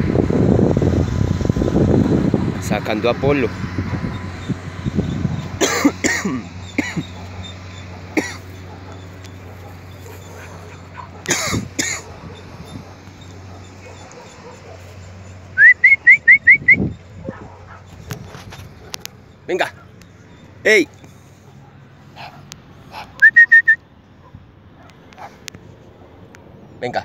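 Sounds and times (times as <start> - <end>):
dog whining: 23.2 - 23.8.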